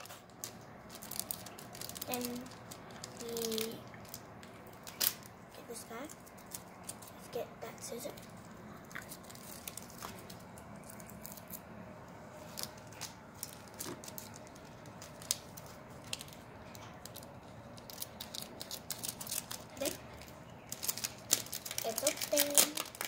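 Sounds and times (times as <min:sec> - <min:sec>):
scissors snipping plastic bag: 0:00.0 - 0:04.2, 0:20.7 - 0:23.0
plastic crinkling: 0:00.0 - 0:23.0.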